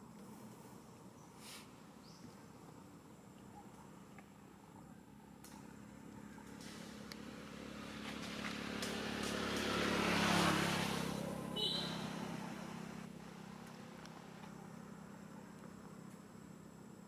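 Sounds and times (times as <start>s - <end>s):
motor vehicle passing: 3.9s - 16.8s.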